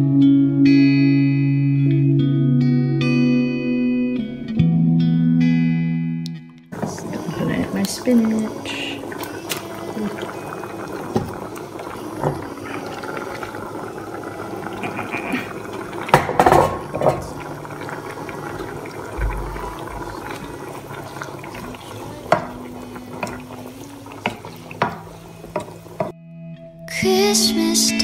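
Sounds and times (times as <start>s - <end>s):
soup bubbling in a saucepan: 6.7s - 26.1s
wooden spoon stirring: 6.8s - 26.1s
spoon knocking against pan: 16.1s - 17.2s.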